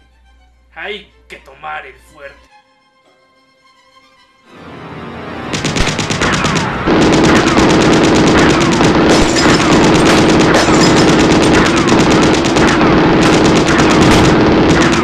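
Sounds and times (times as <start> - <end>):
machine-gun fire: 5.5 - 15.0.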